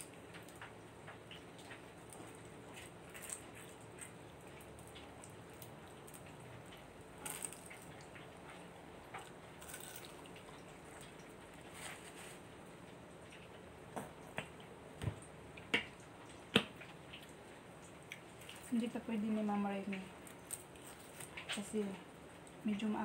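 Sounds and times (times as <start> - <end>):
crisp bites: 9.2 - 10.4, 20.3 - 21.6.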